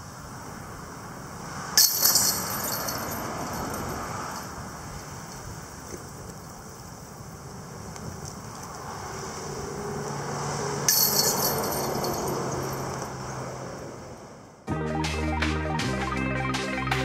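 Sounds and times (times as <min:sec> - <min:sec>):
outdoor background noise: 0:00.0 - 0:17.0
disc striking basket chains: 0:01.8 - 0:04.6, 0:10.8 - 0:13.0.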